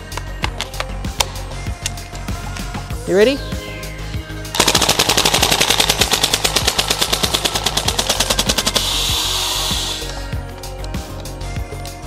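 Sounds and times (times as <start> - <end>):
airsoft gun full-auto firing: 4.6 - 10.0
gas hissing: 8.7 - 10.3.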